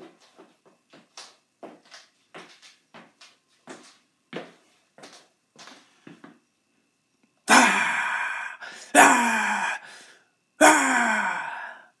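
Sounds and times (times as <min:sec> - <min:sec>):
man sighing breathily: 0:07.5 - 0:12.0.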